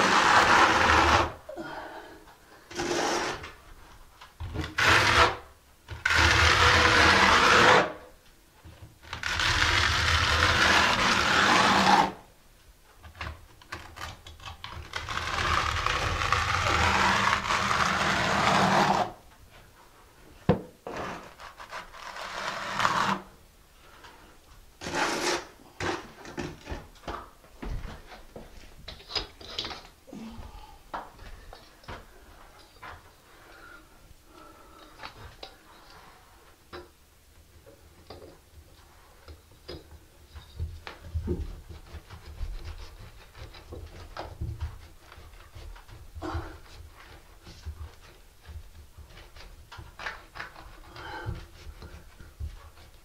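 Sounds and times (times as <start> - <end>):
trowel scraping mortar: 0.0 - 1.4, 2.7 - 3.6, 9.2 - 12.2, 14.8 - 19.2, 20.9 - 23.3, 24.8 - 26.5.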